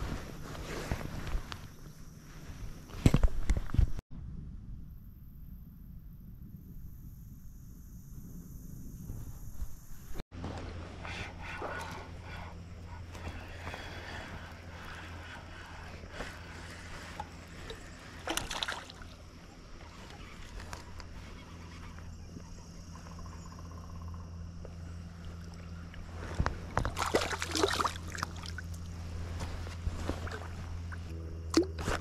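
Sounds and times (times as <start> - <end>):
steady low hum: 0.0 - 32.0
fish splashing at surface: 17.6 - 19.2, 26.8 - 28.6.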